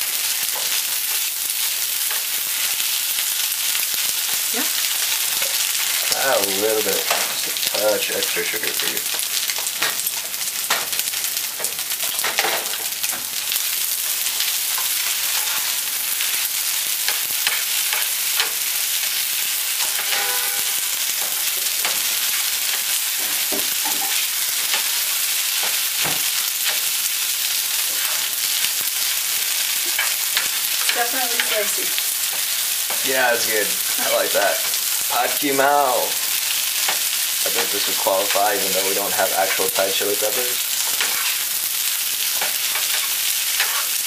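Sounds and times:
noodles sizzling in a skillet: 0:00.0 - 0:44.0
spatula scraping pan: 0:14.5 - 0:15.8, 0:19.7 - 0:26.9, 0:40.8 - 0:41.5, 0:42.3 - 0:44.0.

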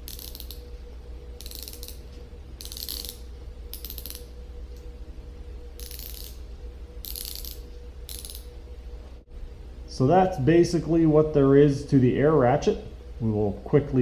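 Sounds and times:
ratchet pawl clicking: 0:00.0 - 0:00.7, 0:01.4 - 0:02.0, 0:02.6 - 0:04.3, 0:05.8 - 0:06.4, 0:07.0 - 0:08.5.

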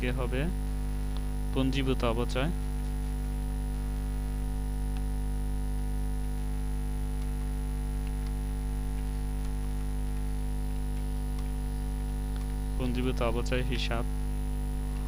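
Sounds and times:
electrical mains hum: 0:00.0 - 0:15.0
keyboard typing clicks: 0:07.2 - 0:10.3, 0:10.9 - 0:13.0.

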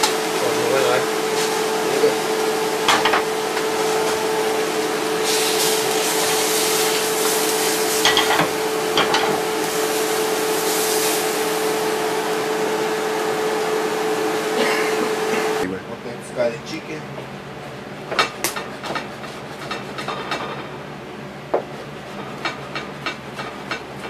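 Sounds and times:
tortillas sizzling in a frying pan: 0:01.2 - 0:12.6.

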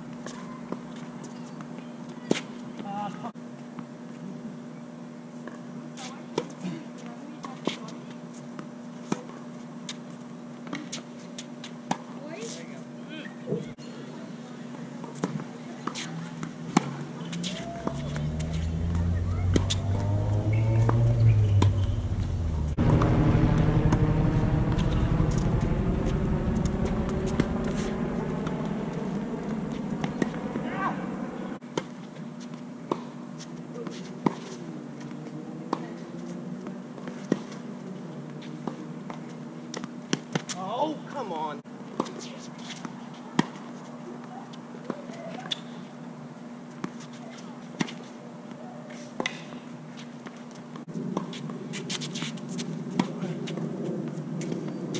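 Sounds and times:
tennis ball hits and bounces: 0:10.6 - 0:12.2, 0:15.0 - 0:23.2, 0:26.9 - 0:30.7, 0:31.7 - 0:37.6, 0:38.4 - 0:40.6, 0:48.9 - 0:54.9
tennis ball struck by racket: 0:15.1 - 0:23.1
passing vehicle engine hum: 0:16.1 - 0:31.6, 0:33.4 - 0:40.1.

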